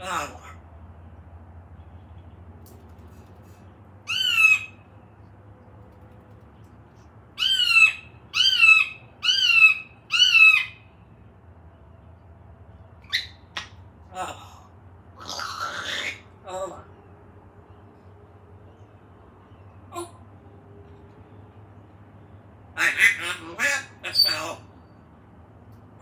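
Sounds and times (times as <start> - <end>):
parrot calling: 0.0 - 0.7, 4.0 - 5.0, 7.3 - 11.0, 13.0 - 17.0, 22.7 - 25.0.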